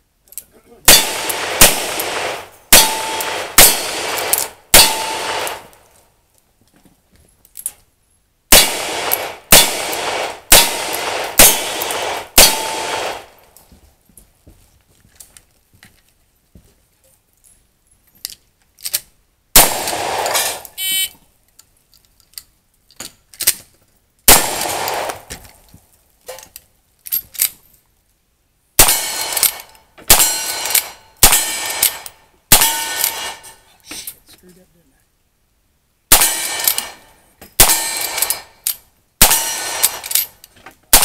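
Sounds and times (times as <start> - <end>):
heavy gunshots echoing: 0.9 - 5.7, 8.5 - 13.3, 19.6 - 20.6, 24.3 - 25.3, 28.8 - 33.5, 36.1 - 37.0, 37.6 - 38.5, 39.2 - 40.1
rifle shots: 0.9 - 5.7, 8.5 - 13.4, 19.6 - 20.7, 24.3 - 25.4, 28.8 - 33.6, 36.1 - 38.6, 39.2 - 40.3
steel target ringing: 2.7 - 5.7, 9.5 - 13.2, 28.8 - 33.5
gun handling clicks: 18.2 - 19.1, 21.5 - 23.7, 39.8 - 40.6.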